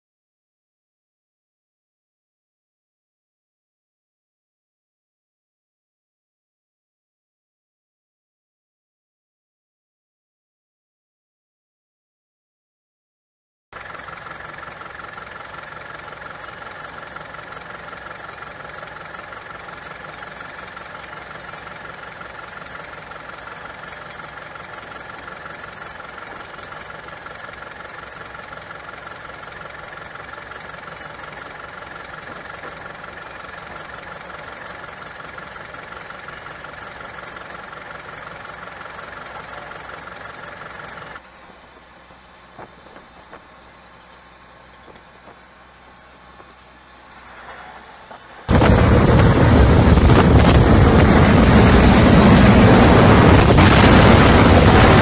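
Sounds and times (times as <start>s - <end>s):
combine harvester engine drone: 13.8s - 55.0s
steady high whine: 13.8s - 55.0s.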